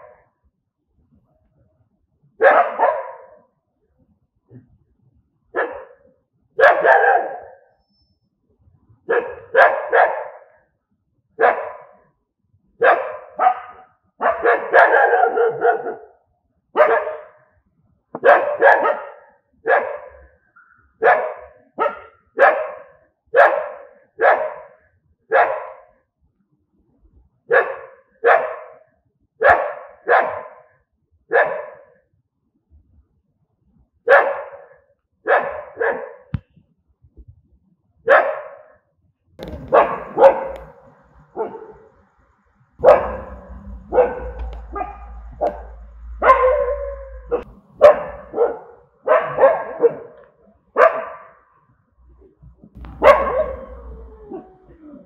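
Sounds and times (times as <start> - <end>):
dog barking: 0.0 - 0.3, 2.4 - 3.6, 5.5 - 7.7, 9.1 - 10.7, 11.4 - 12.1, 12.8 - 16.2, 16.8 - 17.6, 18.2 - 26.0, 27.5 - 32.0, 34.1 - 36.4, 38.1 - 38.8, 39.4 - 41.9, 42.8 - 51.6, 52.8 - 54.5.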